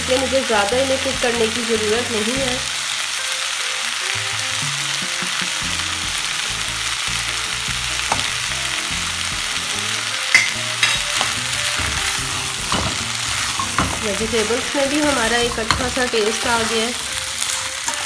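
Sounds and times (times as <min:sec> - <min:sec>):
vegetables sizzling in butter: 0:00.0 - 0:18.0
utensil tapping a pan: 0:04.6 - 0:06.2, 0:08.0 - 0:08.6, 0:10.3 - 0:18.0.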